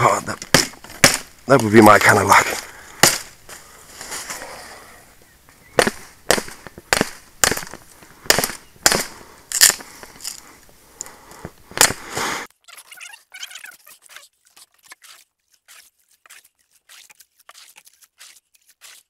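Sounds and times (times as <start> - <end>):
blade chopping a green branch: 0.3 - 3.4, 5.8 - 9.9, 11.8 - 12.1.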